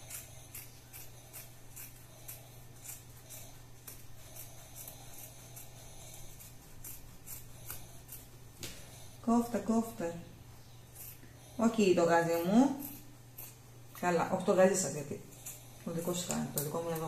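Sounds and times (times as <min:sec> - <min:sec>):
scissors snipping fabric: 0:00.0 - 0:08.8, 0:12.2 - 0:14.1, 0:15.4 - 0:17.0
low steady hum: 0:00.0 - 0:17.0.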